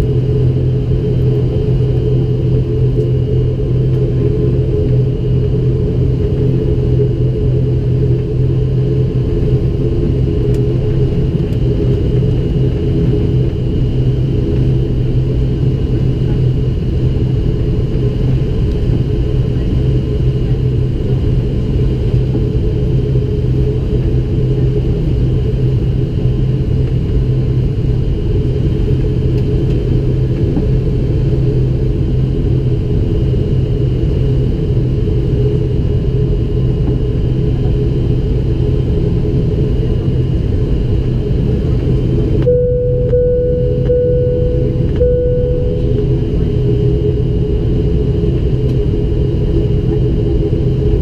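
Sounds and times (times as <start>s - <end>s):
turboprop engines droning: 0.0s - 51.0s
mid-pitched tone with gaps: 42.4s - 47.2s.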